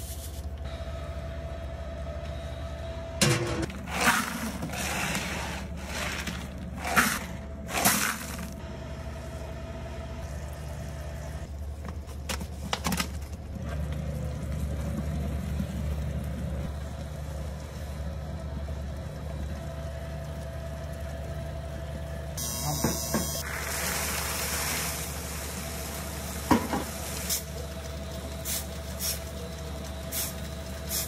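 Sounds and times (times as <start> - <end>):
popcorn scooping rustle and scrape: 3.7 - 8.6.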